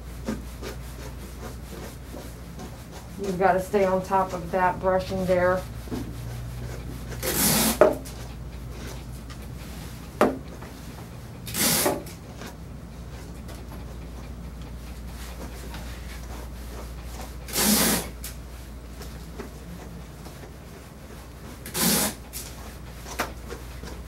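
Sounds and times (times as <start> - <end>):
brush raking through dog fur: 0.0 - 9.0
steady low hum: 0.0 - 24.0.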